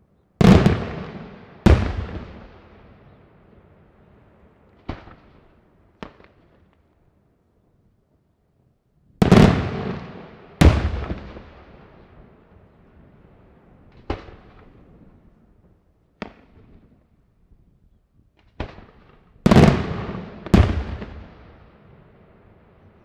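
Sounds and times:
fireworks bursting with echoing bangs: 0.4 - 6.6, 9.2 - 15.4, 16.2 - 17.0, 18.4 - 23.0.

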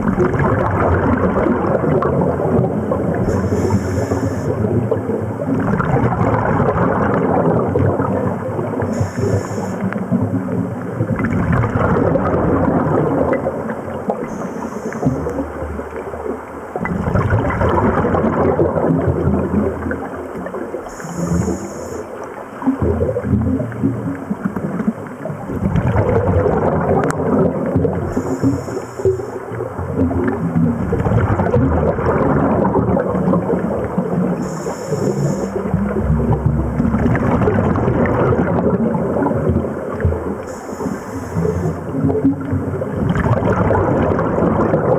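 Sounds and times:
exhaled bubbles rushing underwater: 0.0 - 44.9
regulator inhalation hiss: 3.3 - 4.6, 8.9 - 9.9, 14.3 - 15.4, 20.9 - 22.2, 28.1 - 29.4, 34.4 - 35.7, 40.5 - 41.8.

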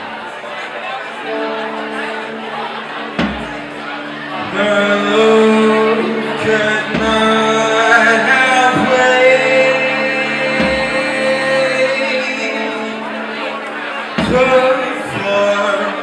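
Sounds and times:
grunge rock band playing live: 1.3 - 16.0
man singing long notes: 1.5 - 16.0
low drum thumps: 3.2 - 3.7, 6.5 - 7.4.

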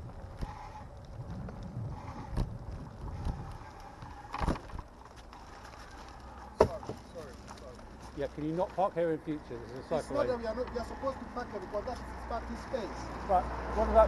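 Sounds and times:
bicycle tyre rumble on tarmac: 0.0 - 14.0
bicycle knocking over bumps: 1.2 - 7.8.

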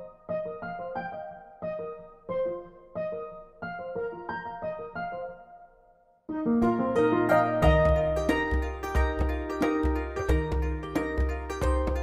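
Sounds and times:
slow piano notes: 0.0 - 12.0.

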